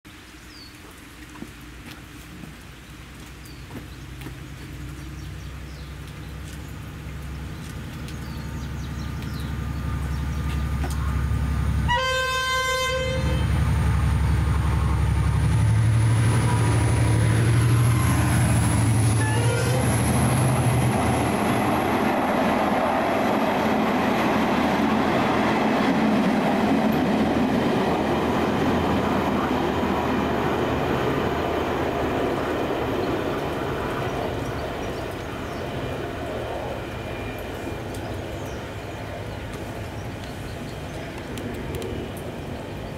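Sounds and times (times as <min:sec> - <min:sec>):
wheel-on-rail noise: 0:00.8 - 0:42.9
diesel locomotive engine drone: 0:03.0 - 0:42.9
train horn blast: 0:11.8 - 0:13.7, 0:19.0 - 0:20.4.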